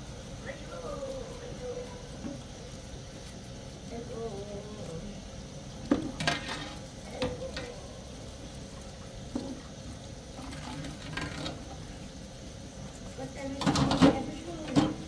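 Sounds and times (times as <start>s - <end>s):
dishes knocking and clattering: 13.6s - 15.0s.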